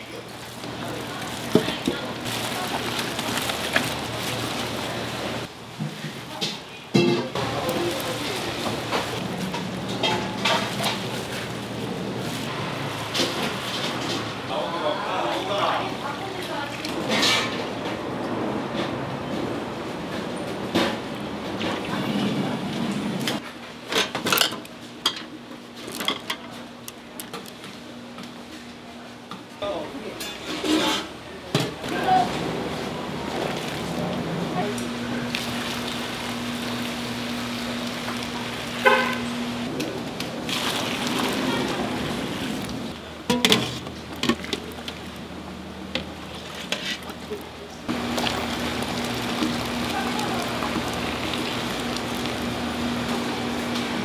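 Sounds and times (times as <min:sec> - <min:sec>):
metal pans clinking: 0:43.3 - 0:44.4.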